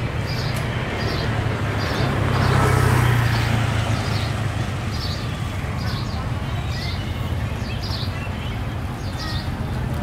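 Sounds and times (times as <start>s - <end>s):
street noise: 0.0s - 10.0s.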